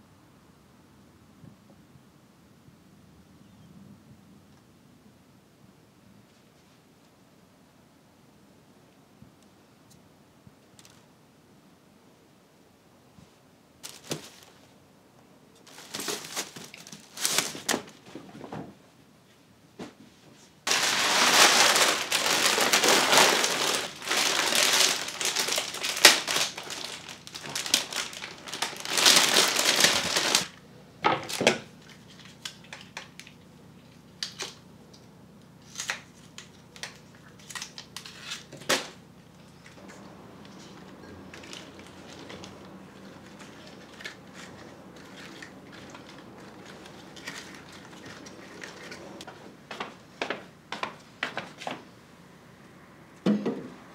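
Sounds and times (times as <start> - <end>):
paper and stems rustling: 13.2 - 14.8, 15.6 - 18.7, 20.2 - 30.6, 35.6 - 51.9
cellophane crinkling: 13.8 - 14.7, 15.6 - 18.0, 20.7 - 30.6, 35.6 - 50.0.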